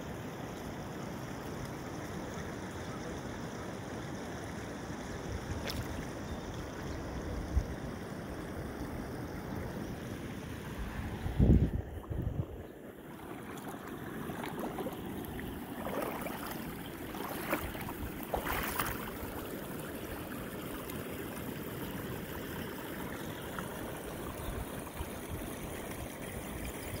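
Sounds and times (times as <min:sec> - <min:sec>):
stream water running over rocks: 0:00.0 - 0:27.0
feet wading through water: 0:05.5 - 0:06.8, 0:10.4 - 0:27.0.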